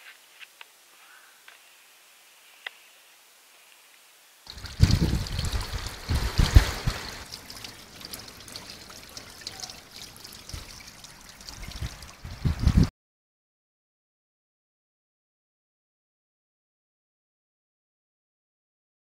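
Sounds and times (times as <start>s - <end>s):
water trickling into pond: 4.4s - 12.9s
low thumps on microphone: 4.6s - 7.2s.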